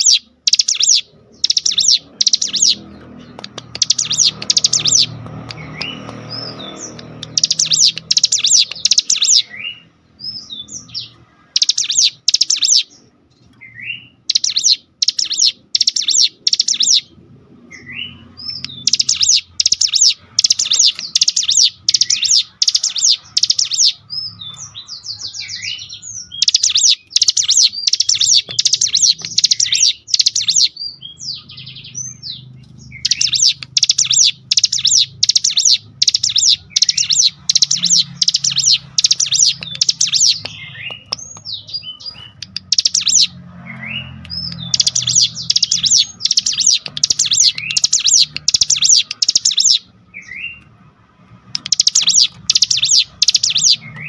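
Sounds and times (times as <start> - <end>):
bird chattering song: 0.0 - 50.7, 51.6 - 54.0.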